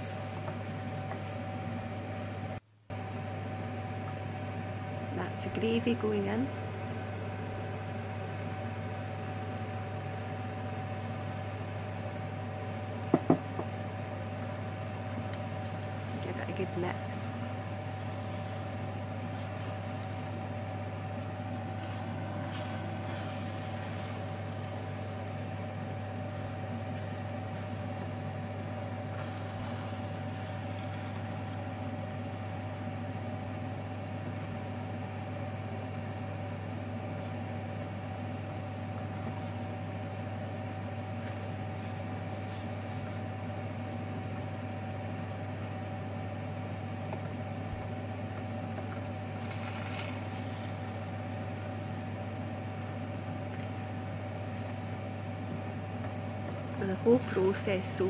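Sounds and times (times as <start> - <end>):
low hum with whine: 0.0 - 58.0.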